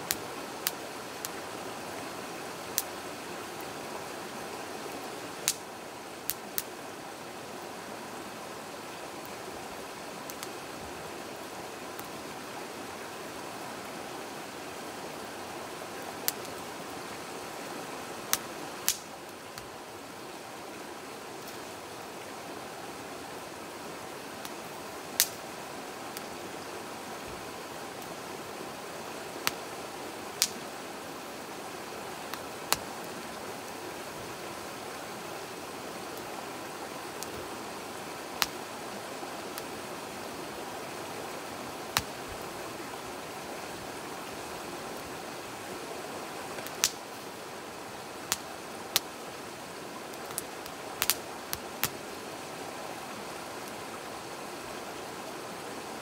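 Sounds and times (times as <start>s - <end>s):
stream rushing: 0.0s - 56.0s
firewood crackling and popping: 0.1s - 1.4s, 2.7s - 3.0s, 5.4s - 5.7s, 6.3s - 6.7s, 10.3s - 10.6s, 18.3s - 19.8s, 25.2s - 25.4s, 29.4s - 29.7s, 30.3s - 30.6s, 32.2s - 33.0s, 37.1s - 37.6s, 38.4s - 38.6s, 41.8s - 42.5s, 46.5s - 47.2s, 48.3s - 49.1s, 50.1s - 52.0s.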